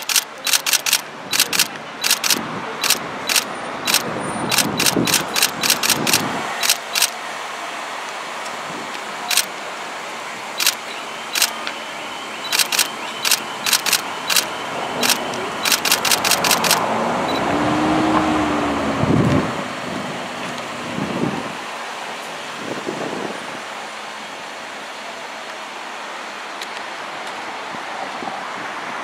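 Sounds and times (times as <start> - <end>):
camera shutter clicks: 0.0 - 7.2, 10.6 - 10.8, 11.4 - 11.6, 12.5 - 16.8
street and engine hum: 0.0 - 29.0.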